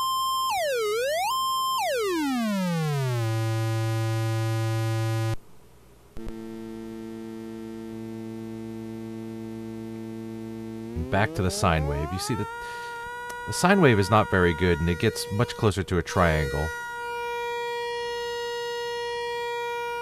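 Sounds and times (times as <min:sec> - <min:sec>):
buzzy square-wave tone: 0:00.0 - 0:05.4, 0:06.2 - 0:20.0
soft low sine tone: 0:01.8 - 0:05.4, 0:06.2 - 0:17.0.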